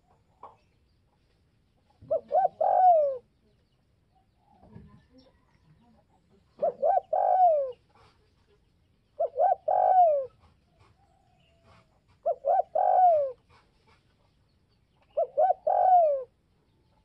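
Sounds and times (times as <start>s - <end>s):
dove cooing: 2.0s - 3.3s, 6.5s - 8.1s, 9.2s - 13.6s, 15.1s - 16.4s.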